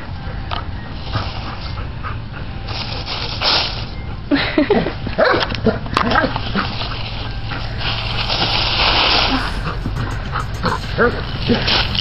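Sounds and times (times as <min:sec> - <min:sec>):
dry leaves rustling and crunching: 0:02.7 - 0:04.0, 0:06.1 - 0:09.9.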